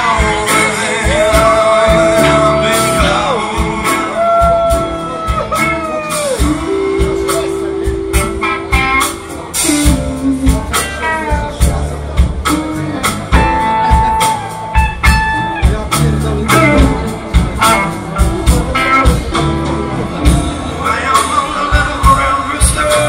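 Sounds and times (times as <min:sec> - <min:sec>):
live blues band: 0:00.0 - 0:23.0.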